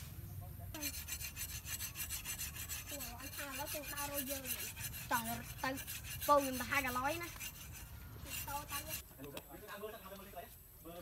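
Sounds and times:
rasping scrapes on wood: 0.8 - 9.0.

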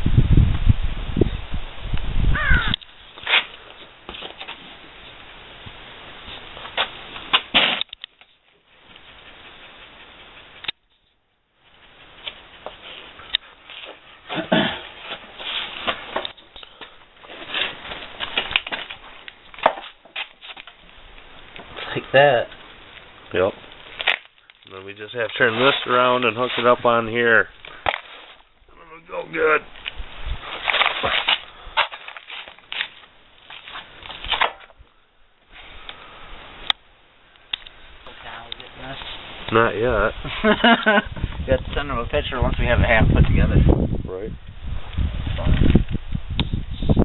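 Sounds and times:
plastic sheet rustling: 13.7 - 16.3, 17.2 - 20.9, 23.4 - 27.0, 29.8 - 34.7
plastic bag crinkling: 30.5 - 34.4.

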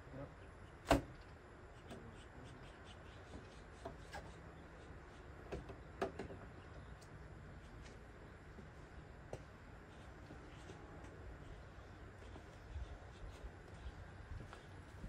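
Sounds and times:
low steady background noise: 0.0 - 15.0.

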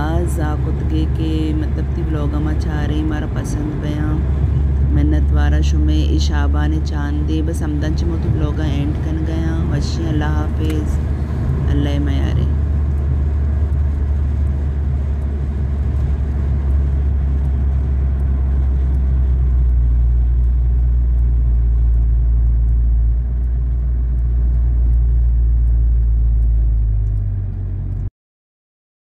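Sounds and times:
car road and engine rumble: 0.0 - 28.1.

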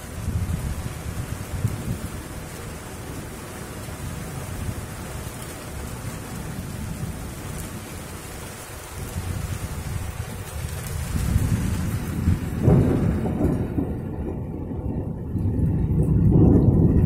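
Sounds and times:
heavy rain pouring: 0.0 - 17.0
thunder rumbling: 0.0 - 17.0.

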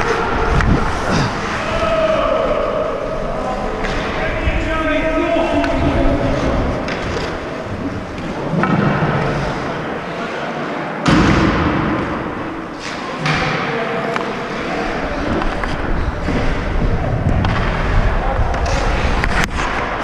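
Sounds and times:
skates scraping on ice: 3.2 - 9.8, 14.4 - 20.0.

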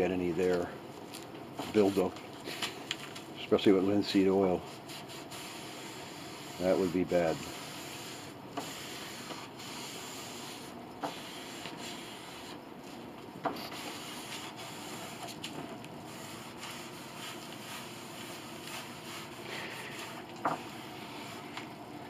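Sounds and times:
cloth rubbing on wood: 4.1 - 13.0, 13.6 - 21.6.

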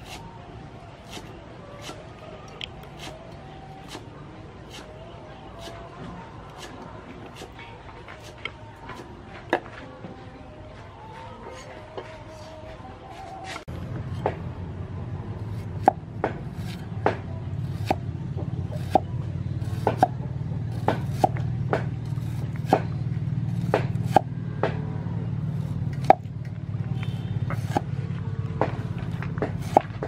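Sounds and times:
steady low rumble: 13.6 - 30.0.

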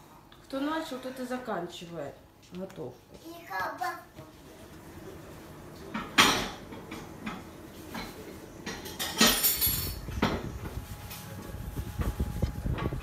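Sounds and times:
low oven hum: 0.0 - 13.0
oven door and baking tray rattle: 5.8 - 11.2.

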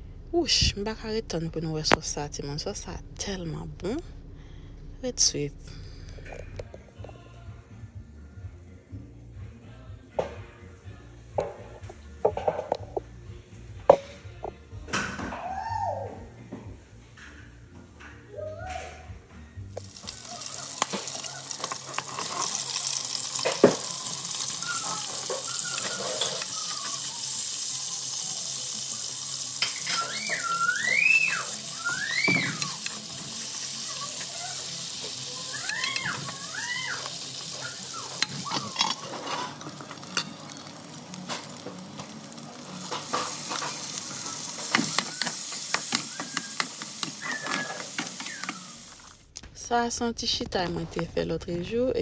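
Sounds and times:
food sizzling in oil: 19.7 - 49.3.

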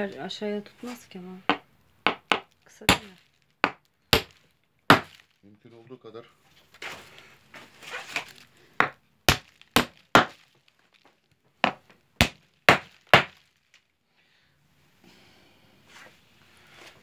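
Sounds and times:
hammer driving nail into wood: 3.6 - 5.2, 8.8 - 10.4, 11.6 - 13.4.

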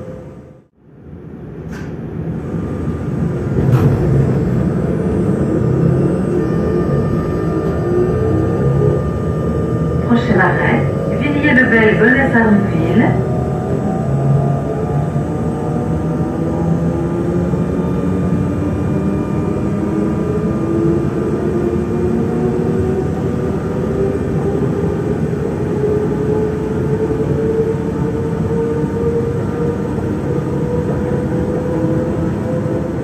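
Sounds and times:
electric train traction whine: 0.0 - 33.0
train low rumble: 0.0 - 33.0.

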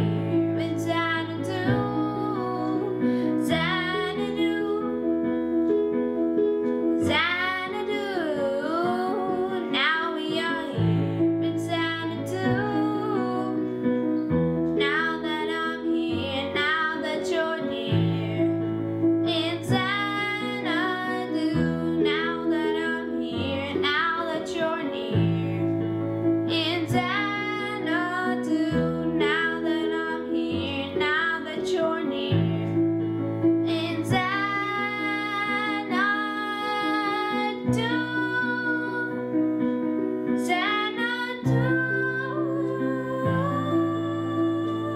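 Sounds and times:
boy singing: 33.7 - 39.2, 40.5 - 44.9.

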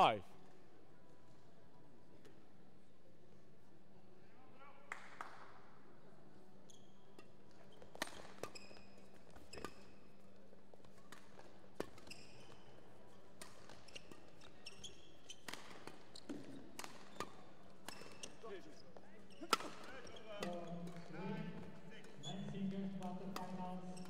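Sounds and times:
rackets hitting shuttlecock: 19.4 - 24.0.

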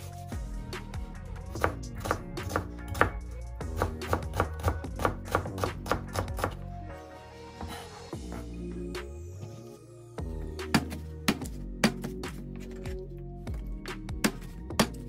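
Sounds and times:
background music: 0.0 - 15.0
knife chopping on cutting board: 1.5 - 3.1, 10.7 - 12.8, 14.2 - 15.0.

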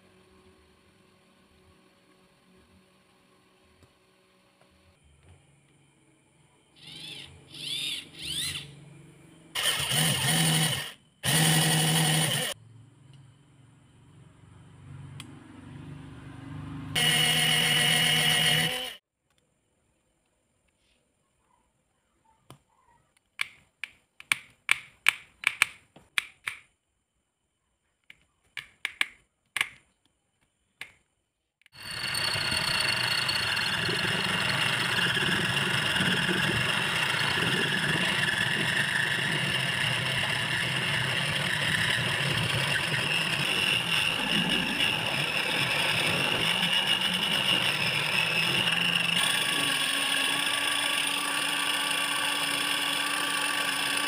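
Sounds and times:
cutting tool shaving plastic: 9.6 - 12.6, 17.0 - 19.0, 31.7 - 54.0
small lathe running: 9.6 - 12.6, 16.9 - 19.0, 31.7 - 54.0.

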